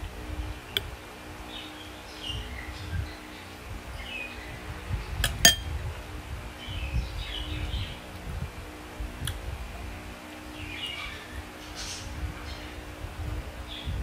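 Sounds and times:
spoon clinking against bowl: 0:05.4 - 0:05.7.

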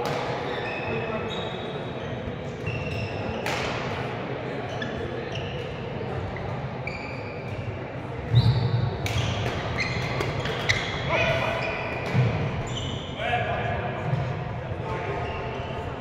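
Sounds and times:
shoes squeaking on floor: 0:00.4 - 0:03.4, 0:04.6 - 0:05.8, 0:06.4 - 0:13.2
racket hitting shuttlecock: 0:03.4 - 0:04.0, 0:09.0 - 0:10.8.

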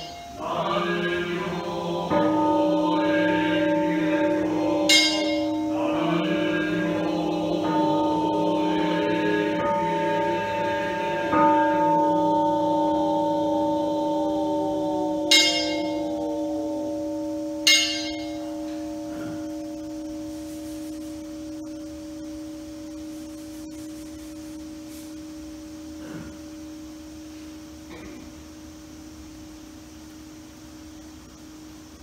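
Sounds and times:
bright bell strike: 0:00.0 - 0:00.5, 0:04.9 - 0:06.0, 0:15.2 - 0:17.0, 0:17.6 - 0:19.7
bowl bell ringing tone: 0:00.0 - 0:27.5.

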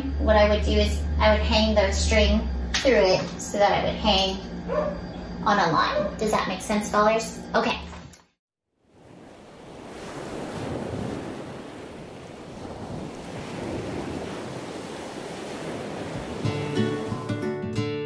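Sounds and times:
ocean surf: 0:08.8 - 0:17.6
strummed acoustic guitar: 0:16.4 - 0:18.0.

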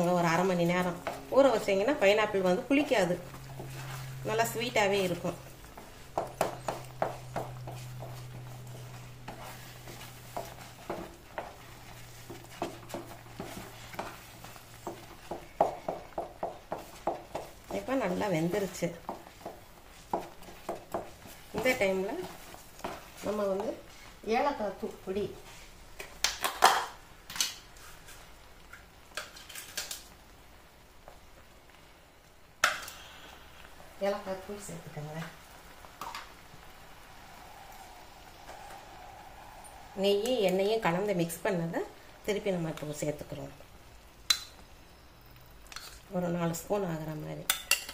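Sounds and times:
wooden spatula scraping steel pan: 0:00.2 - 0:23.8
low hum: 0:35.7 - 0:42.3.

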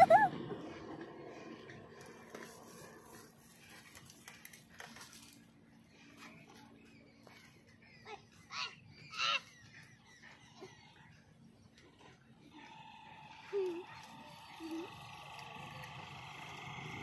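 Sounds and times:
bird chirping: 0:05.7 - 0:17.0.

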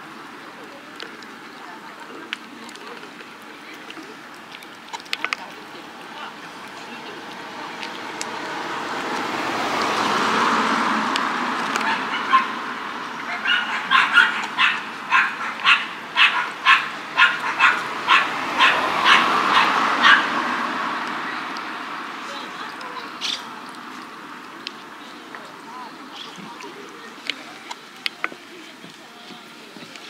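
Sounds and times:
steady rushing noise: 0:05.8 - 0:25.0
dog barking: 0:11.8 - 0:12.6, 0:13.2 - 0:20.4.

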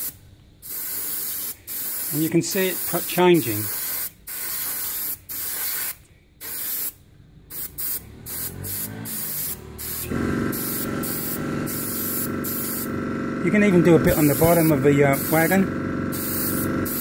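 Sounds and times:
airbrush hissing in bursts: 0:00.0 - 0:13.0, 0:13.6 - 0:17.0
steady mechanical hum: 0:09.5 - 0:17.0.

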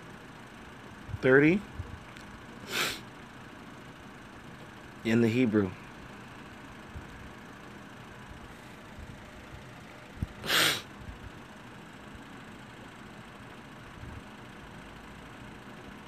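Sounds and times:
steady low hiss: 0:00.0 - 0:15.0
loud breath close to microphone: 0:02.6 - 0:03.1, 0:10.4 - 0:10.9.

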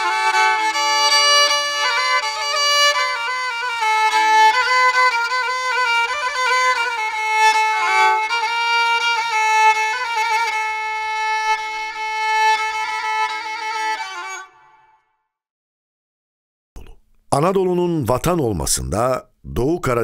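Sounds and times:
slow violin melody: 0:00.0 - 0:15.2.

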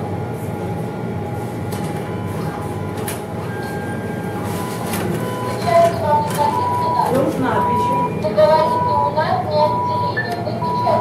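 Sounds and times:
low rumbling machinery hum: 0:00.0 - 0:11.0.

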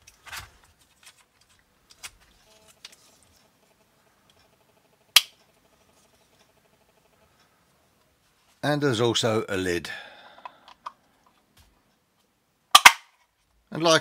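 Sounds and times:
plastic parts clicking: 0:00.0 - 0:03.4, 0:10.4 - 0:11.4.

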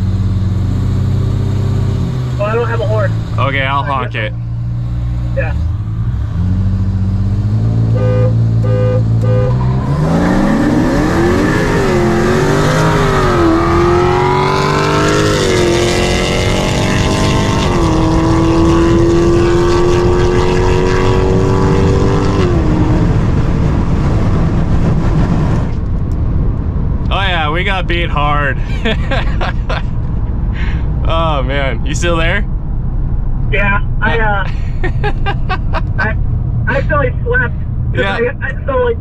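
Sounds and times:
engine accelerating through upshifts: 0:00.0 - 0:26.8
car engine revving: 0:00.0 - 0:39.0
car horn honking: 0:07.8 - 0:10.0.

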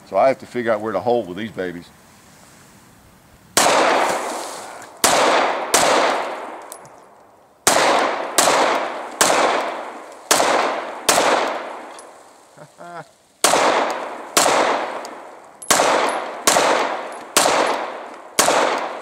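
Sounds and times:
pistol shots with echo: 0:03.6 - 0:04.2, 0:05.0 - 0:06.8, 0:07.6 - 0:12.1, 0:13.4 - 0:19.0.

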